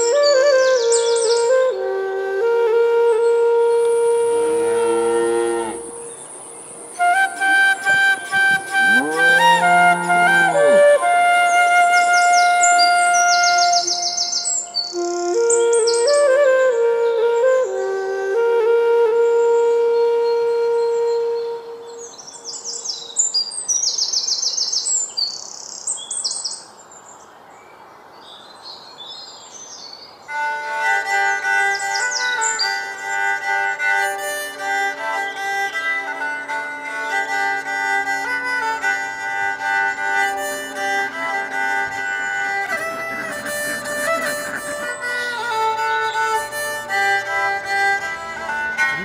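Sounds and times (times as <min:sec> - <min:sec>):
birds chirping: 0:00.0 - 0:01.7, 0:03.1 - 0:18.0, 0:31.3 - 0:33.5, 0:39.7 - 0:49.0
violin melody: 0:00.0 - 0:22.1, 0:30.3 - 0:49.0
faint steady hiss: 0:00.0 - 0:49.0.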